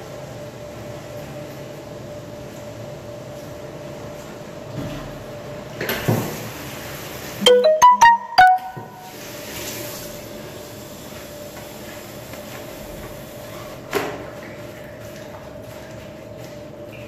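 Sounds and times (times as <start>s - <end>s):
short electronic chime: 7.4s - 9.1s.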